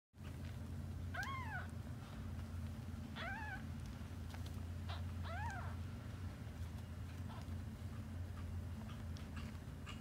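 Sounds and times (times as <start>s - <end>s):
steady low hum: 0.2s - 10.0s
kitten meowing: 1.1s - 1.7s, 3.2s - 3.7s, 4.9s - 5.8s.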